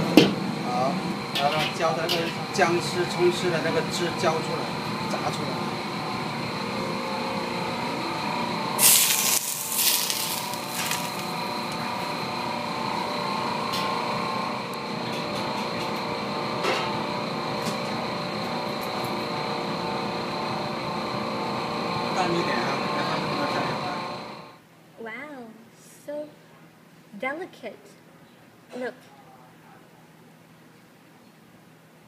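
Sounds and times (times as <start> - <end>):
kitchen ventilation hum: 0.0 - 32.0
hot oil sizzling on fish: 8.8 - 11.7.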